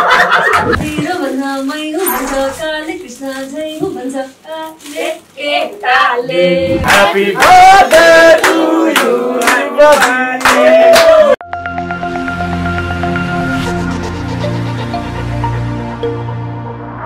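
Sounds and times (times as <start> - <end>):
group of people singing: 5.4 - 11.3
rhythmic hand clapping: 6.9 - 11.3.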